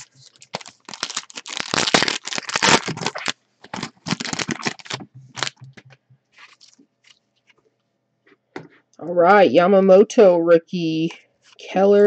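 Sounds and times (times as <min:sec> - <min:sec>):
plastic wrapper tearing and crinkling: 0:00.0 - 0:05.7, 0:06.4 - 0:07.2
cards rustling and clicking: 0:00.0 - 0:07.6.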